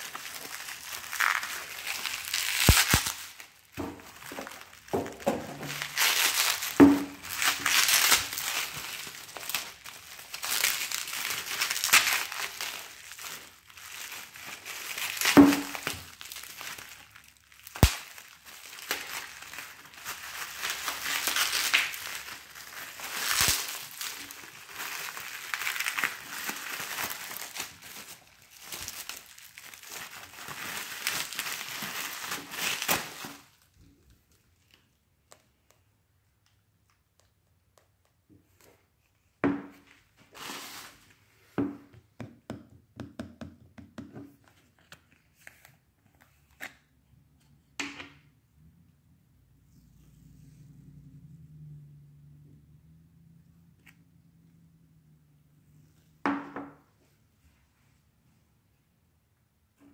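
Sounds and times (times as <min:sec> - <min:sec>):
bubble wrap crinkling: 0:00.0 - 0:35.4, 0:39.9 - 0:41.2.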